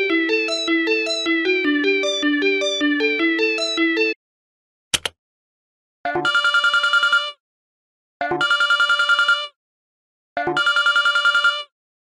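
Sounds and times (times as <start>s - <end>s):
phone ringtone with fast trill: 0.0s - 4.2s, 6.1s - 7.4s, 8.2s - 9.6s, 10.4s - 11.7s.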